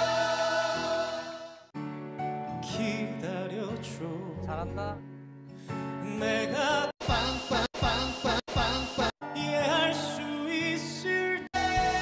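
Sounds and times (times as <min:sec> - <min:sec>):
male vocal group singing: 0:00.0 - 0:01.7, 0:06.0 - 0:12.0
soft musical accompaniment: 0:01.8 - 0:12.0
man singing with vibrato: 0:06.0 - 0:12.0.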